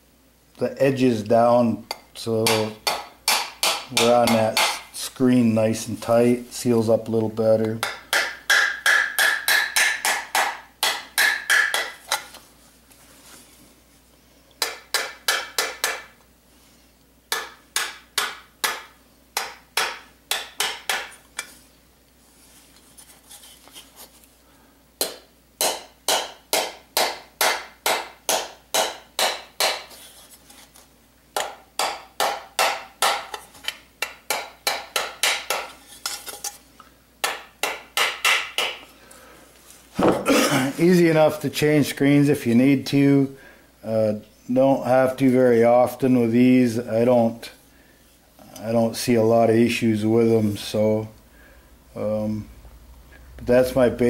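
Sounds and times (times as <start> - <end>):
small hammer tapping metal: 1.9 - 4.8, 7.6 - 12.2, 14.6 - 16.1, 17.3 - 21.5, 31.4 - 36.6.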